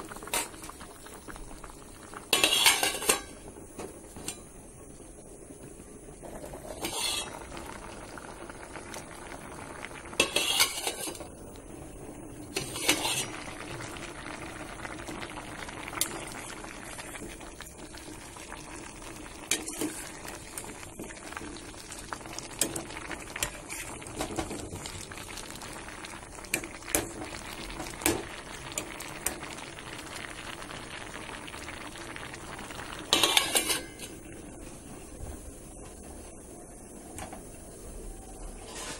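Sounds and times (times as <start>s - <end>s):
pot boiling with hiss: 0.0s - 38.9s
metal clanks against pot: 2.3s - 3.4s, 10.2s - 11.2s, 12.5s - 13.3s, 33.1s - 34.2s.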